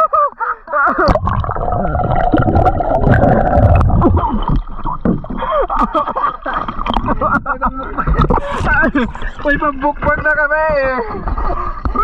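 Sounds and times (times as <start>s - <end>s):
sea water sloshing and gurgling: 1.0s - 12.0s.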